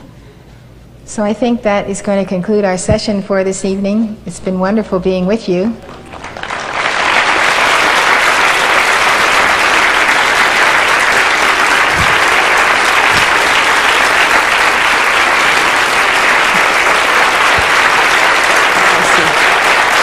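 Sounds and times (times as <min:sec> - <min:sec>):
large audience applauding: 0:05.9 - 0:20.0.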